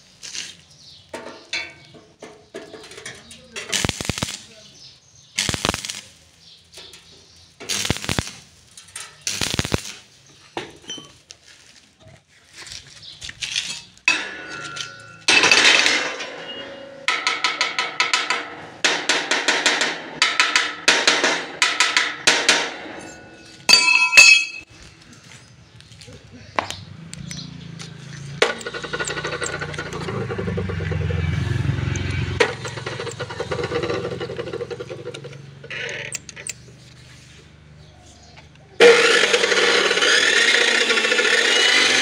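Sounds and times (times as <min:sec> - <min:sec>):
welding arc crackling: 0:00.0 - 0:01.2, 0:02.8 - 0:10.3, 0:27.8 - 0:30.3, 0:31.3 - 0:36.7.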